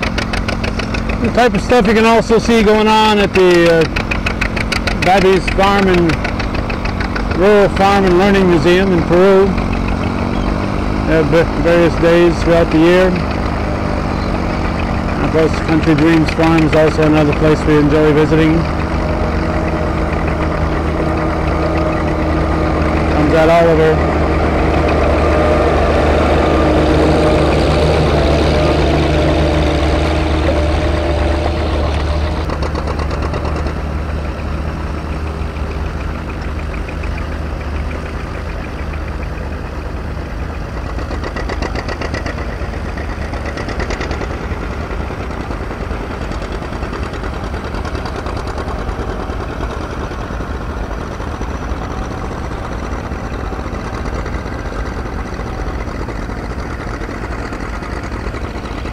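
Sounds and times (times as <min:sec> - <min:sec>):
tractor engines running under load: 0:00.0 - 0:58.9.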